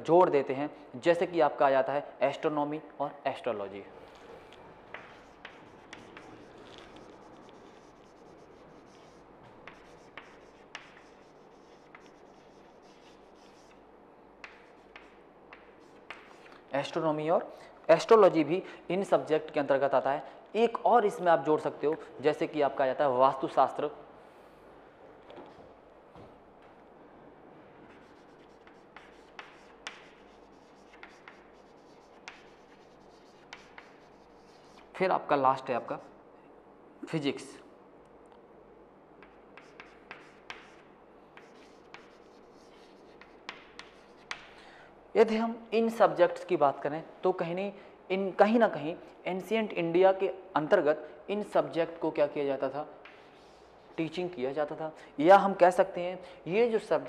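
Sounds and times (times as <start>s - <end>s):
chalk scratching on chalkboard: 4.1s - 13.8s, 14.4s - 16.6s, 27.9s - 35.0s, 39.2s - 44.5s, 53.0s - 54.4s
chalk tapping board: 4.9s - 13.8s, 14.4s - 16.6s, 27.9s - 34.9s, 39.2s - 44.6s, 53.0s - 54.2s.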